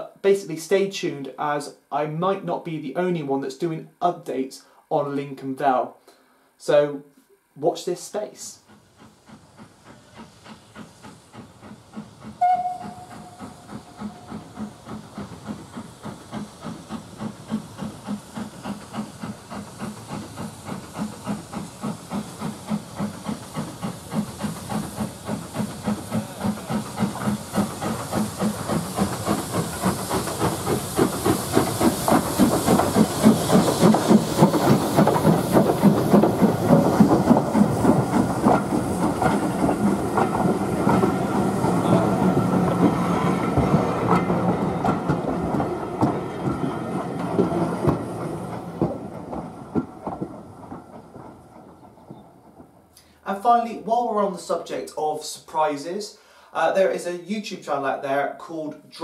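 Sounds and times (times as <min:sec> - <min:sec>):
steam locomotive chuffing: 0:07.6 - 0:57.9
steam locomotive whistle: 0:12.4 - 0:14.3.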